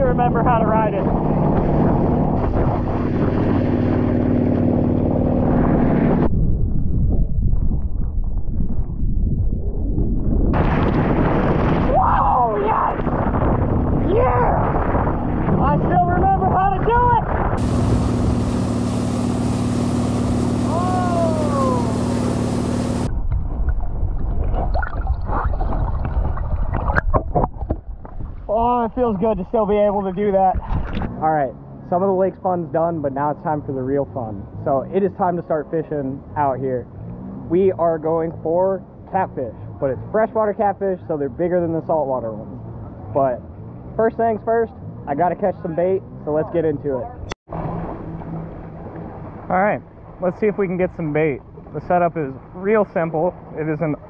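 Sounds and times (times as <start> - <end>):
boat engine droning: 0.0 - 6.3, 10.6 - 23.2, 28.6 - 54.0
wind and water spray rushing: 0.0 - 6.3, 10.5 - 31.2
muffled underwater churning: 0.0 - 31.2, 47.5 - 54.0
falling tone: 0.3 - 24.2.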